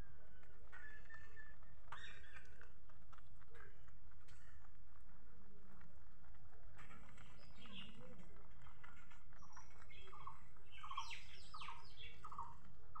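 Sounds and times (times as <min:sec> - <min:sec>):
small birds chirping: 0:00.3 - 0:02.8, 0:06.7 - 0:13.0.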